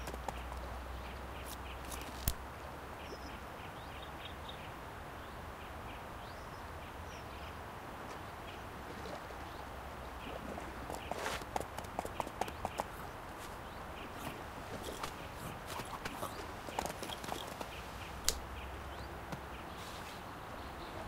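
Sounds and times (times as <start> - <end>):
outdoor background hiss: 0.0 - 21.0
faint bird chirps: 12.0 - 21.0.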